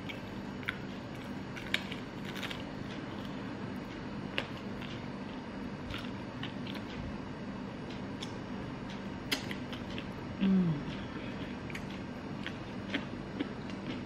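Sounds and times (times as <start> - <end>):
crunchy chewing: 0.0 - 14.0.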